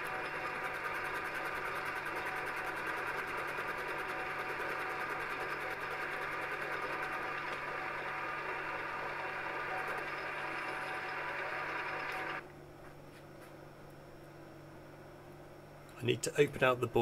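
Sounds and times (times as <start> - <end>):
metal lathe hum: 0.0 - 12.4
turning tool ticking: 0.0 - 12.4.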